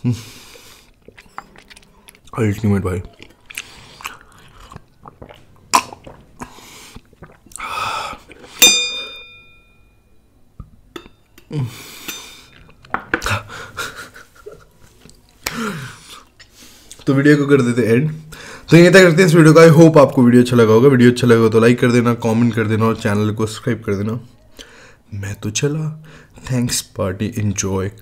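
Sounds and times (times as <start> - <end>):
chewing and mouth sounds: 0.5 - 8.6.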